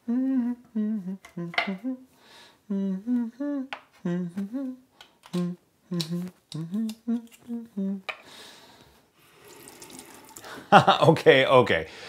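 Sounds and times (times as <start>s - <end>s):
man humming a tune: 0.0s - 8.2s.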